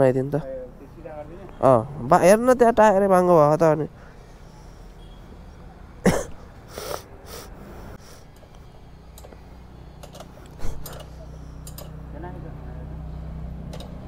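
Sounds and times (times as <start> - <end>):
person coughing: 6.0 - 6.4
breathy bursts: 6.6 - 8.3
tools clicking on wheel: 10.0 - 12.0.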